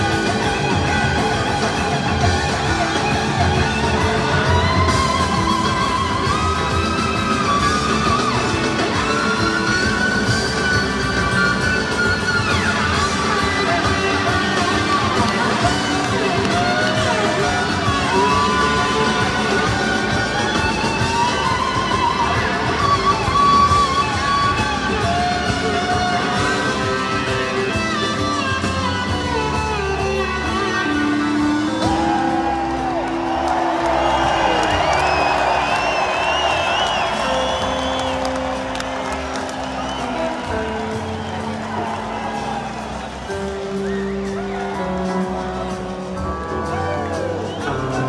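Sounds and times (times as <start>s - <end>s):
electric guitar solo: 0.0s - 48.0s
live rock band playing: 0.0s - 48.0s.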